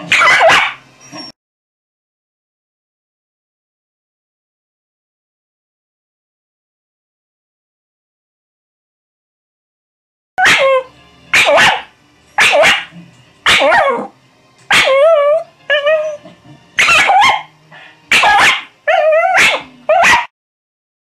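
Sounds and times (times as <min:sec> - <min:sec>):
dog barking: 0:00.0 - 0:00.8, 0:10.4 - 0:14.1, 0:14.7 - 0:15.1, 0:16.8 - 0:17.5, 0:18.1 - 0:20.3
dog yowling: 0:00.0 - 0:01.4, 0:10.4 - 0:14.1, 0:14.7 - 0:17.5, 0:18.1 - 0:20.3.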